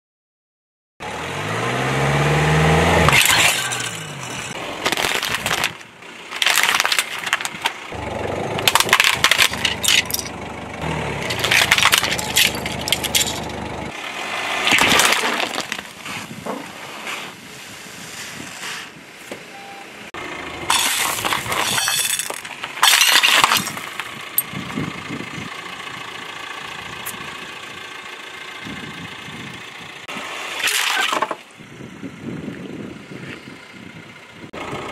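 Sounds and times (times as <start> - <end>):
car engine running: 1.0 - 14.1, 20.2 - 30.5, 31.6 - 34.9
plastic and glass crushing under tyre: 3.0 - 10.6, 11.2 - 13.9, 14.6 - 16.6, 20.7 - 24.5, 30.6 - 31.5.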